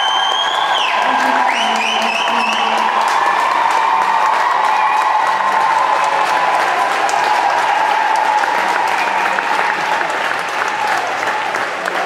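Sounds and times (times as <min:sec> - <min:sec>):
audience applauding: 0:00.0 - 0:12.0
steady tone: 0:01.0 - 0:03.3.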